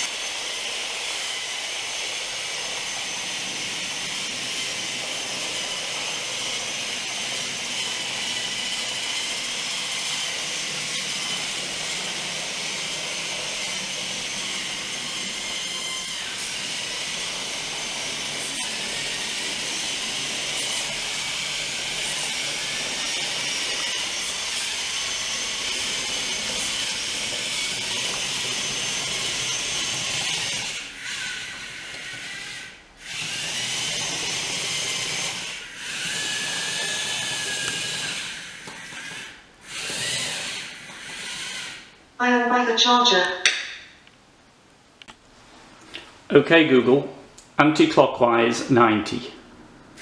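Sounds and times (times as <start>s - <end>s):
robot motors whirring: 2.2s - 41.9s.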